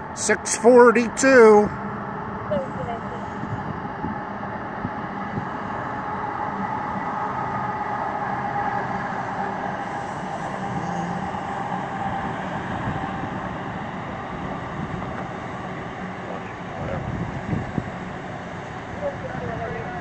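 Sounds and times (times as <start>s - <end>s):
train rolling past: 1.8s - 20.0s.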